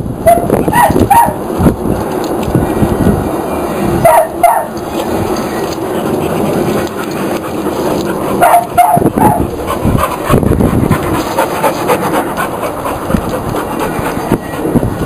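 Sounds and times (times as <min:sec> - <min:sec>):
dogs panting: 0:04.6 - 0:15.0.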